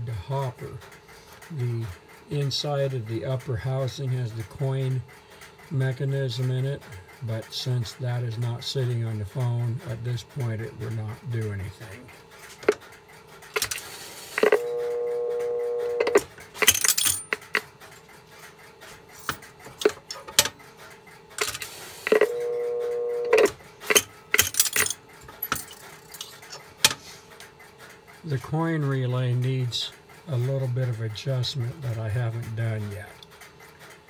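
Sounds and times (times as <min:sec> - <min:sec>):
payphone handset clicks and rattling: 0:12.3 - 0:27.0
steady phone line tone: 0:13.5 - 0:17.7, 0:22.0 - 0:25.7.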